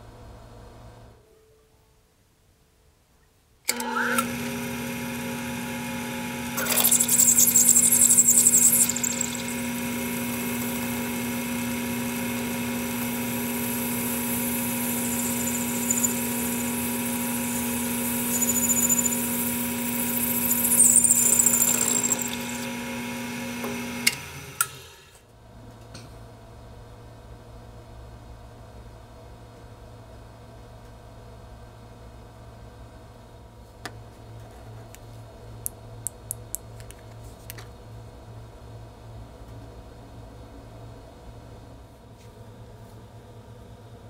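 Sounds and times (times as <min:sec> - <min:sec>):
drill press motor humming: 0:03.7 - 0:25.0
drill bit grinding into metal: 0:06.5 - 0:22.8.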